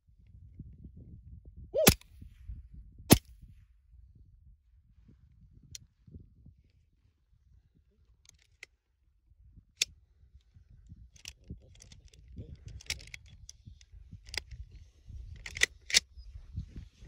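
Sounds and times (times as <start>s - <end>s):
sharp clicks and rattles: 11.2s - 13.6s, 15.4s - 16.0s.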